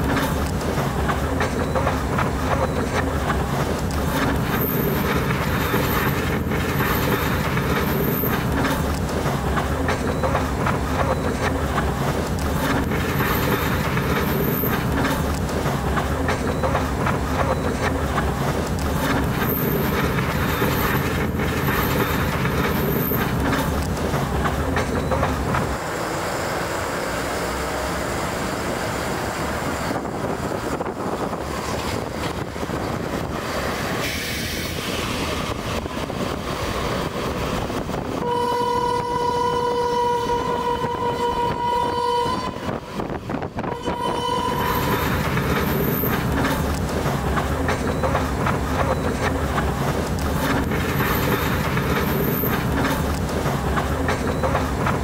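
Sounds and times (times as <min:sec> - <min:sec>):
train wheels rumbling on rails: 0:00.0 - 0:55.0
train horn blasts: 0:38.2 - 0:45.2.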